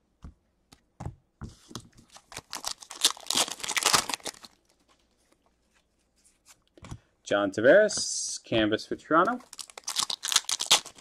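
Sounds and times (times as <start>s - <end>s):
wrapper tearing and crinkling: 2.2s - 4.8s, 9.4s - 11.0s.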